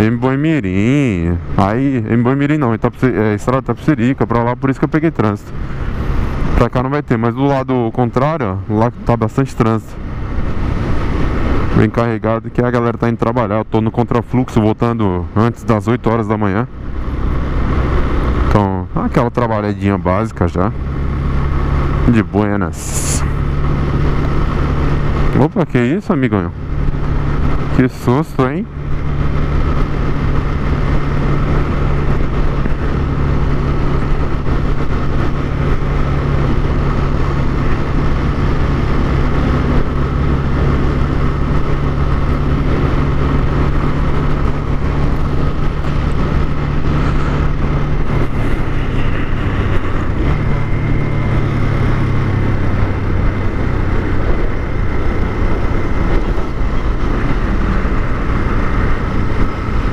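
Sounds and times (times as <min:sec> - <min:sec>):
low road rumble: 0:00.0 - 0:59.9
motorcycle engine running: 0:20.2 - 0:59.9.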